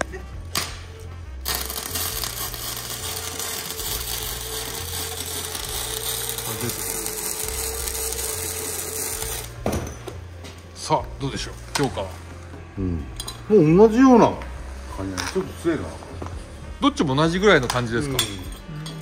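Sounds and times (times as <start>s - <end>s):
welding arc crackling and sizzling: 0.6s - 9.6s.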